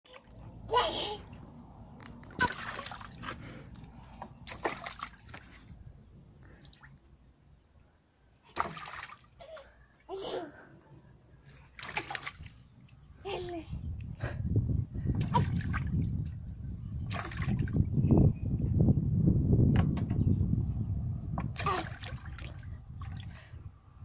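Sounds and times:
water splashing: 2.3s - 5.8s, 8.5s - 9.4s, 11.4s - 13.6s, 15.2s - 16.3s, 17.1s - 17.9s, 21.6s - 23.4s.

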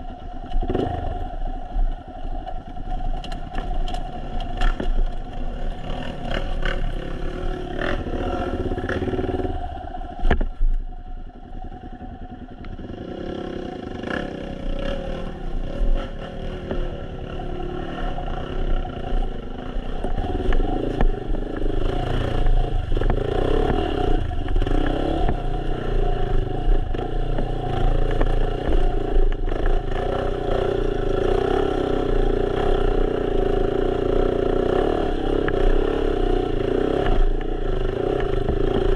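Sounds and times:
dirt bike engine revving: 5.5s - 9.7s, 12.8s - 38.9s.

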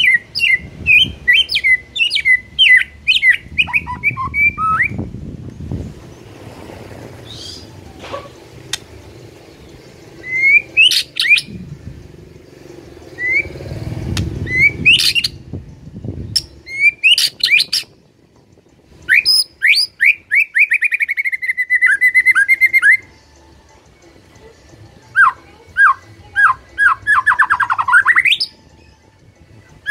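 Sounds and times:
bird singing whistled phrases: 0.0s - 5.1s, 10.2s - 11.5s, 13.2s - 13.6s, 14.4s - 15.4s, 16.4s - 17.9s, 19.1s - 23.1s, 25.1s - 28.6s
low rumble: 3.4s - 17.1s.

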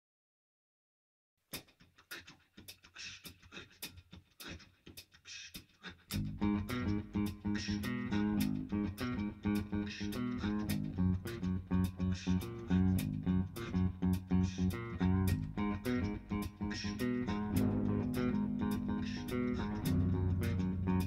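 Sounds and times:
low bass guitar riff: 6.1s - 21.0s
percussive bass guitar clicks: 6.1s - 21.0s.

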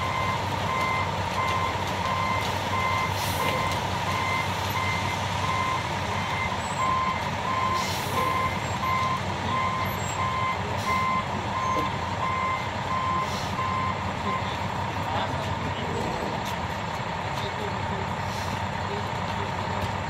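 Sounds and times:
reversing alarm beeping: 0.0s - 14.6s
truck engine running: 0.0s - 20.0s.

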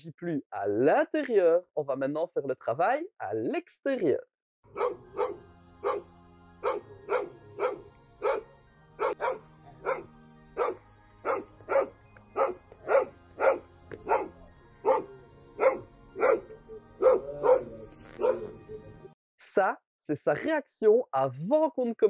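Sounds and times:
dog barking: 4.8s - 6.0s, 6.6s - 18.6s.

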